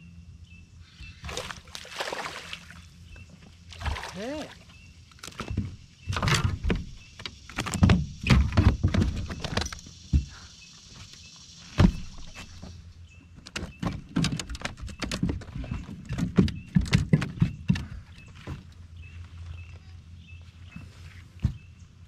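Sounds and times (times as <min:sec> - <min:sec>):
knocks and thumps on boat deck: 0:05.2 - 0:10.4, 0:11.7 - 0:12.7, 0:13.4 - 0:18.8, 0:21.4 - 0:21.8.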